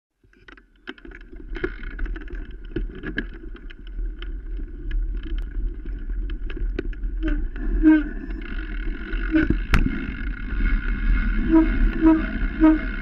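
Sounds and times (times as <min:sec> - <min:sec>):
bike rattling and knocking: 0:00.2 - 0:13.0
bike rolling over bumpy trail: 0:00.2 - 0:13.0
wind on microphone: 0:04.5 - 0:13.0.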